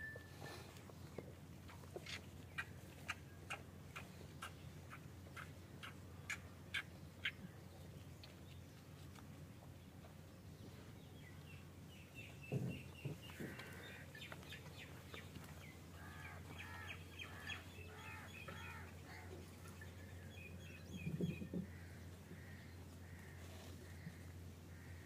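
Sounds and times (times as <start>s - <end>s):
birds chirping and calling: 11.3s - 23.3s.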